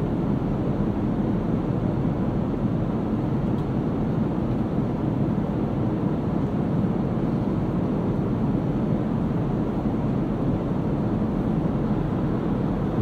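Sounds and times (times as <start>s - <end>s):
airliner cabin engine rush: 0.0s - 13.0s.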